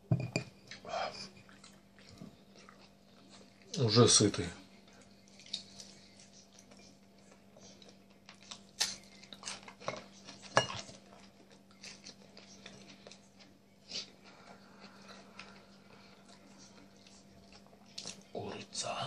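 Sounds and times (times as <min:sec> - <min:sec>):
quiet chewing: 0:00.6 - 0:03.9, 0:04.6 - 0:18.8
fork clinking against a plate: 0:09.4 - 0:11.0.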